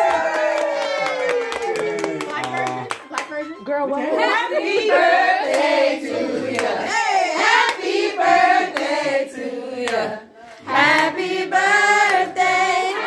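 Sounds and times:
hand clapping: 0.0s - 3.4s, 6.5s - 6.8s, 8.7s - 9.0s
group singing: 4.0s - 13.0s.

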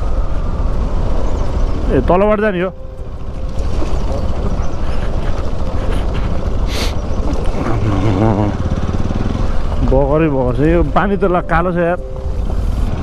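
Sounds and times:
motorcycle engine running: 2.9s - 11.4s.

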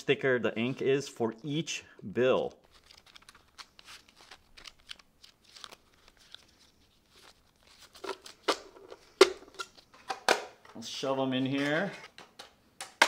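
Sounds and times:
paper bills rustling: 2.0s - 9.2s.

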